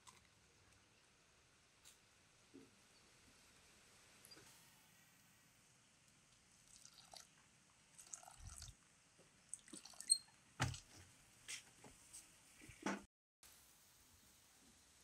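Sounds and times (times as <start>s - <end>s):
water pouring into metal bowl: 6.6s - 7.3s, 8.0s - 8.7s.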